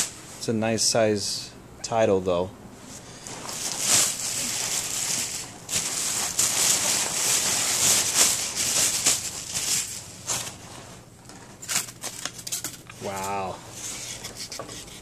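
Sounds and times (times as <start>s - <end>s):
plastic wrapping crinkling: 3.1s - 14.3s.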